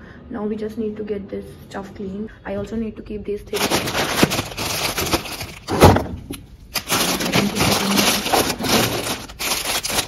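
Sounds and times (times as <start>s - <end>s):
plastic packets crinkling: 3.5s - 10.0s.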